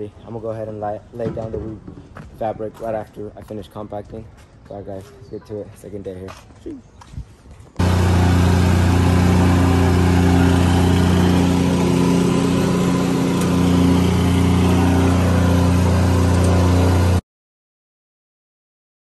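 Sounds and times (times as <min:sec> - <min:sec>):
plate compactor engine running: 0:07.8 - 0:17.2.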